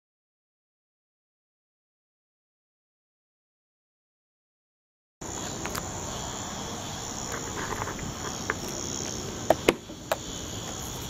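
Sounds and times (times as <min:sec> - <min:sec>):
insect chorus chirring: 0:05.2 - 0:11.0.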